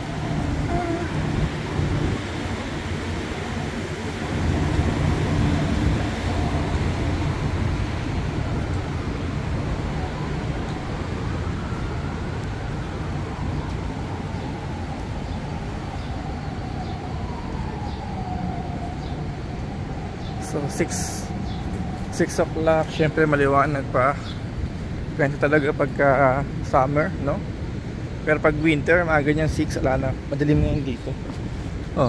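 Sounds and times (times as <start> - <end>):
faint siren: 0.0 - 23.5
cars and buses passing: 0.0 - 32.0.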